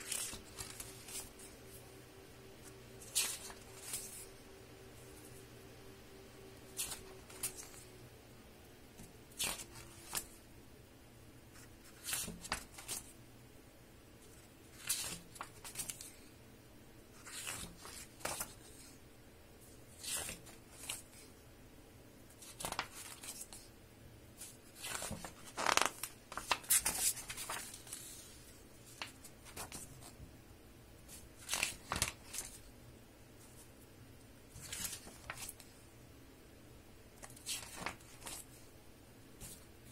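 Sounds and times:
book pages turning: 0:00.0 - 0:01.9, 0:02.6 - 0:05.5, 0:06.5 - 0:07.9, 0:09.0 - 0:10.4, 0:11.6 - 0:13.1, 0:14.3 - 0:16.2, 0:17.2 - 0:19.0, 0:19.9 - 0:21.3, 0:22.3 - 0:23.6, 0:24.4 - 0:30.2, 0:31.1 - 0:32.7, 0:34.5 - 0:35.7, 0:37.2 - 0:38.6, 0:39.4 - 0:39.7.

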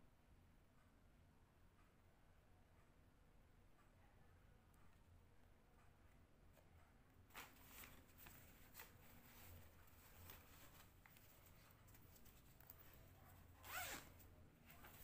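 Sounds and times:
fabric pouch rustling: 0:07.3 - 0:15.0
zipper pull clicks: 0:13.6 - 0:14.2.

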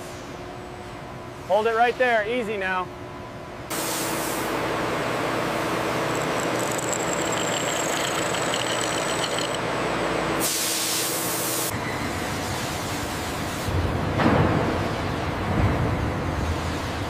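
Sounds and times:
thin high whine: 0:06.0 - 0:09.7.

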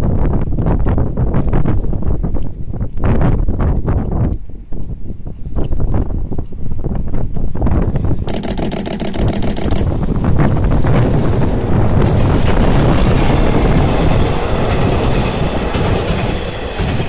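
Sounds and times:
train wheels on rail: 0:12.1 - 0:17.0.

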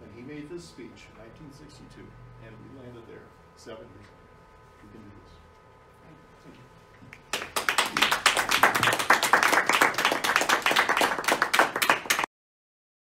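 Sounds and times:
audience applause: 0:07.3 - 0:12.3.

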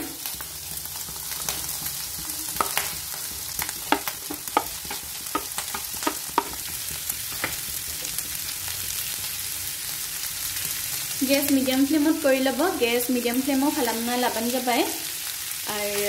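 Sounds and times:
meat sizzling in a frying pan: 0:00.0 - 0:16.0
spatula knocking against plate and pan: 0:03.8 - 0:06.8.

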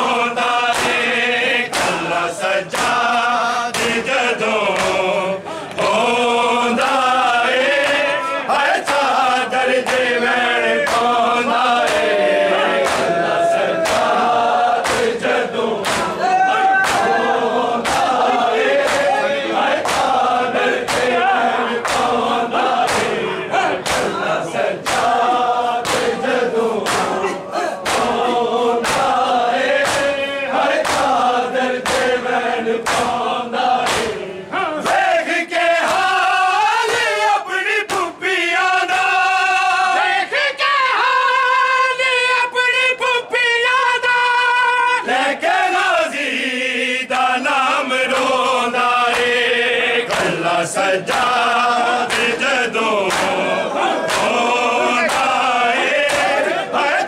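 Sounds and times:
long sung lines: 0:00.0 - 0:39.8
men chanting in unison: 0:00.0 - 0:57.0
hand slaps on bare chests: 0:00.4 - 0:04.1, 0:04.7 - 0:06.1, 0:06.7 - 0:10.2, 0:10.8 - 0:11.2, 0:11.8 - 0:23.2, 0:23.8 - 0:34.2, 0:35.8 - 0:36.2, 0:36.8 - 0:37.2, 0:37.8 - 0:38.2, 0:48.0 - 0:49.5, 0:50.1 - 0:50.4, 0:51.0 - 0:52.4, 0:53.0 - 0:56.6.

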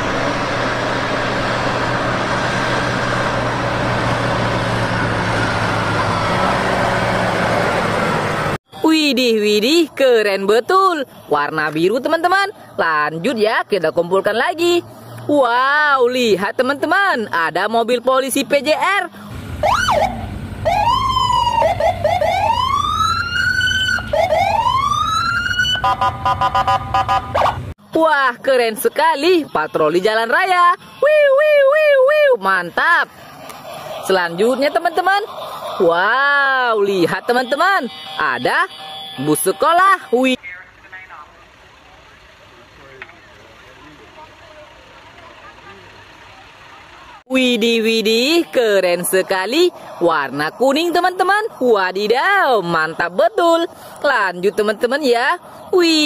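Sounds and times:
tractor diesel engine running: 0:00.0 - 0:08.6, 0:32.7 - 0:52.5
police siren wailing: 0:02.5 - 0:08.6, 0:19.4 - 0:27.7, 0:30.3 - 0:33.0, 0:33.8 - 0:42.3.

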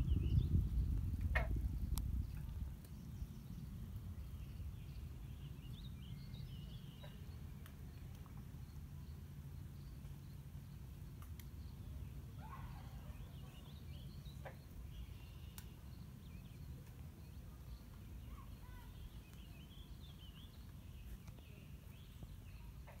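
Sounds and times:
steady low rumble: 0:00.0 - 0:12.3.

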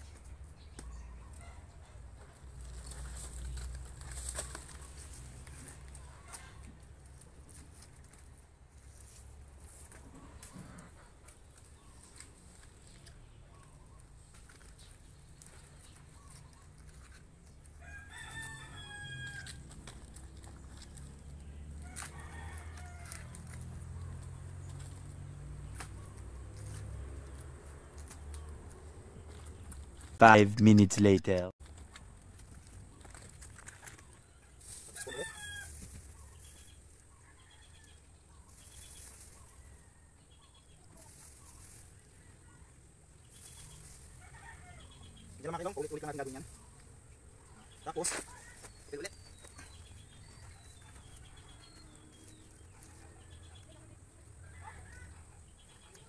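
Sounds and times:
rooster crowing: 0:17.8 - 0:19.7, 0:21.8 - 0:23.4, 0:35.0 - 0:35.9.

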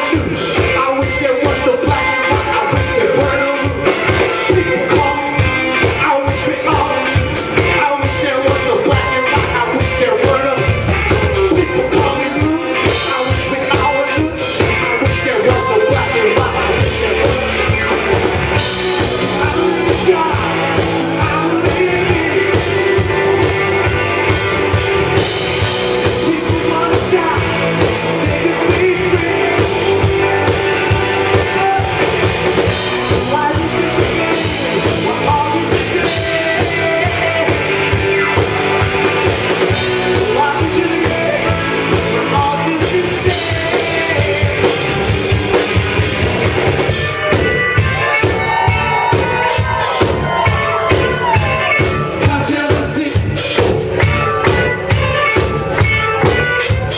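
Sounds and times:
person singing: 0:00.0 - 0:46.2, 0:46.8 - 0:56.9
live rock band playing: 0:00.0 - 0:56.9.

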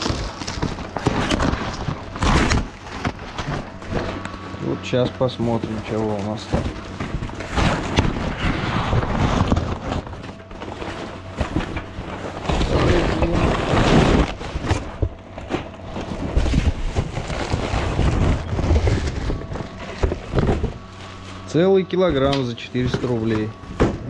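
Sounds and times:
cardboard box being torn open: 0:00.0 - 0:04.2, 0:06.1 - 0:20.9.

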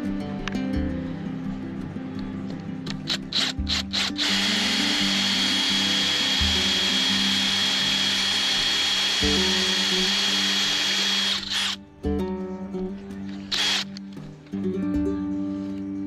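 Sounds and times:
cordless drill whining: 0:03.1 - 0:11.8, 0:13.5 - 0:14.0.

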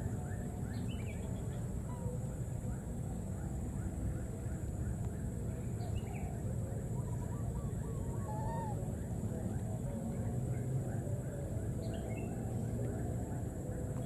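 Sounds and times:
faint animal calls: 0:06.9 - 0:09.8.

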